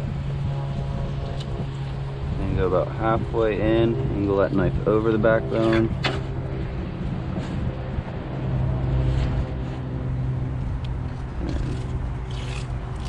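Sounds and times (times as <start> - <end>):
low motor hum: 0.0 - 13.0
knife scraping on cutting board: 11.4 - 12.7.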